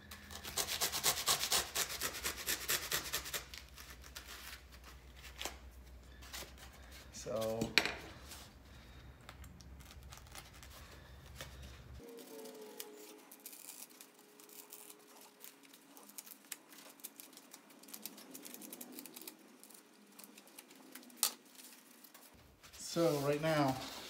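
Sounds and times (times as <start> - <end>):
knife cutting through foam: 0.2 - 4.7.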